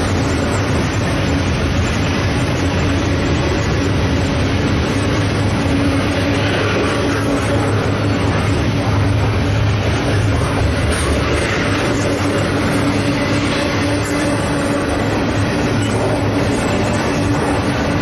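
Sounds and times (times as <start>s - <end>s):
steel wheels rumbling on rails: 0.0s - 18.0s.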